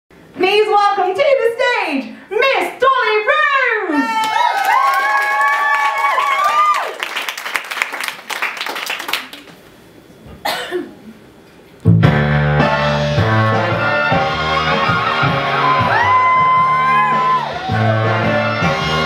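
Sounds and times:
audience applause: 4.1s - 9.6s, 14.3s - 19.0s
recorded music with bass line: 11.8s - 19.0s.

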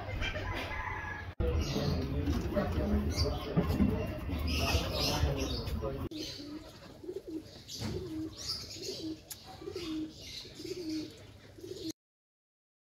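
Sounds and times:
bird cooing: 4.0s - 12.0s.

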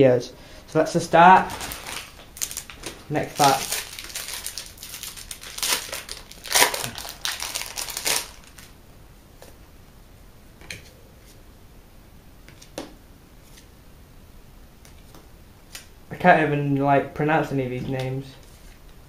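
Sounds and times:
foil wrapper tearing and crinkling: 1.3s - 8.7s.

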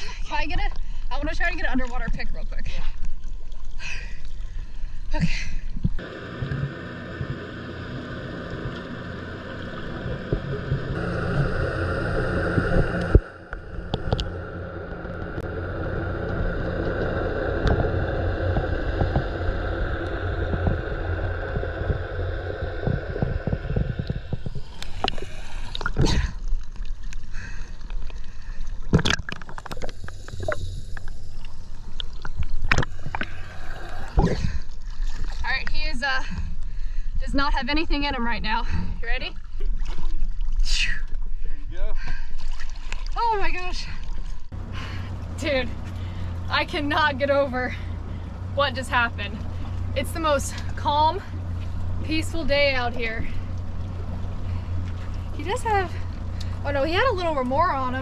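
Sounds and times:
muffled underwater hiss: 6.0s - 28.8s, 29.6s - 35.3s
water splashes and knocks: 28.8s - 30.6s, 39.5s - 40.6s.

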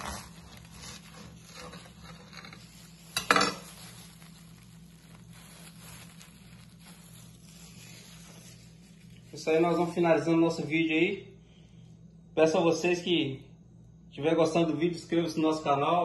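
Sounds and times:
knife sawing through bread: 0.0s - 3.0s
crust crackling: 0.0s - 10.7s
plastic gloves rustling: 0.0s - 10.7s.

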